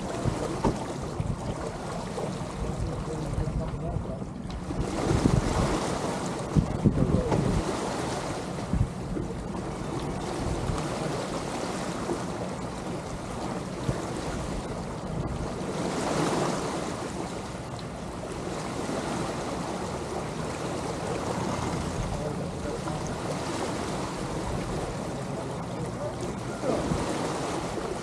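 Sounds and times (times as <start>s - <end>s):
wind buffeting microphone: 0.0s - 17.1s, 21.1s - 28.0s
water washing along hulls: 0.0s - 28.0s.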